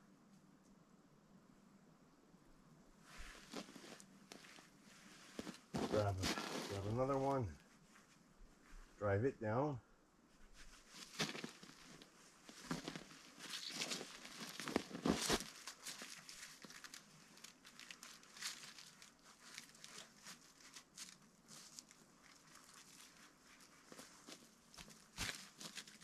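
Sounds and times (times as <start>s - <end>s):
boots crunching in snow: 5.3s - 7.0s, 10.9s - 16.2s, 23.9s - 26.0s
chicken wire crinkling: 10.8s - 26.0s.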